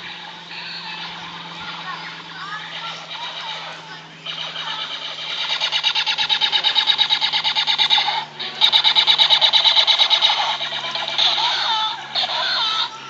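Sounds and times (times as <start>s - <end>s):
laser tag blaster pulsed beeps: 2.7s - 11.5s.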